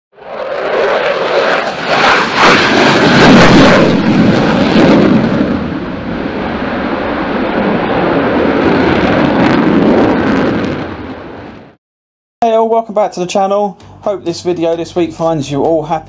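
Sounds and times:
jet engines rushing: 0.2s - 11.8s.

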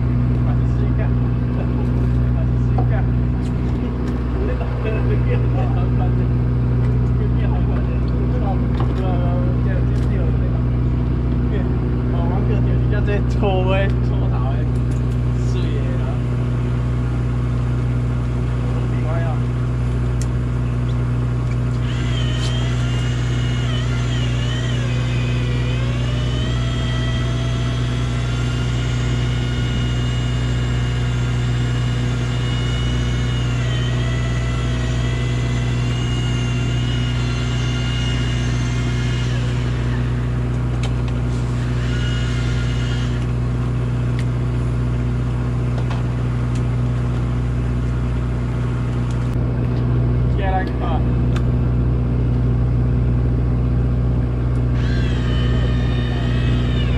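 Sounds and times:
boat machinery droning: 0.0s - 56.9s
electric fishing reel whining: 21.6s - 43.8s, 54.6s - 56.9s.

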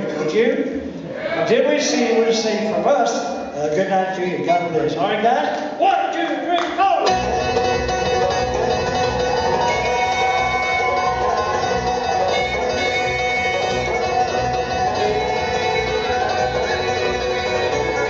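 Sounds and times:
bluegrass band playing: 7.0s - 18.0s.

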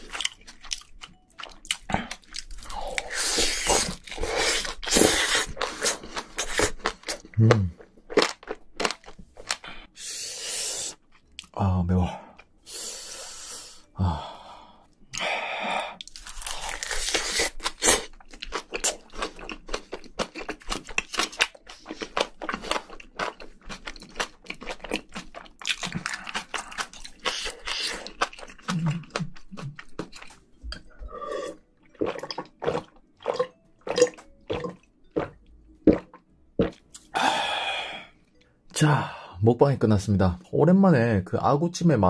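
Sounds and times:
wet chewing mouth sounds: 16.0s - 37.1s.

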